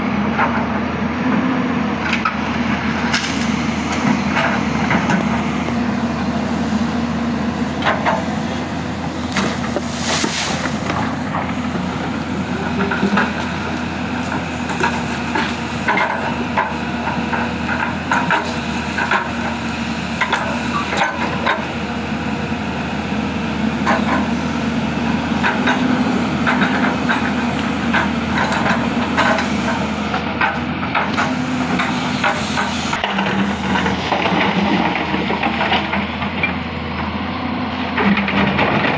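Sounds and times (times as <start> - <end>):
excavator diesel engine running: 0.0 - 38.9
bucket knocking and branches cracking: 9.3 - 11.3
brief hiss: 9.6 - 10.8.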